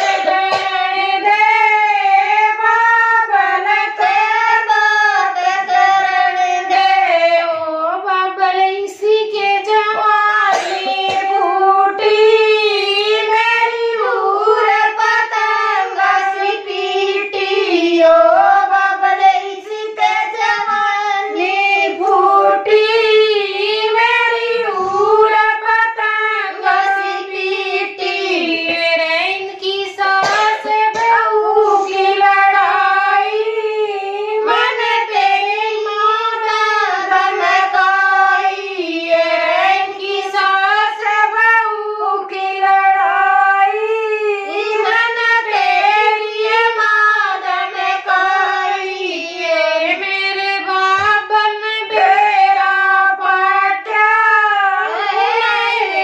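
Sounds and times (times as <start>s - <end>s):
women singing unaccompanied: 0.0s - 56.0s.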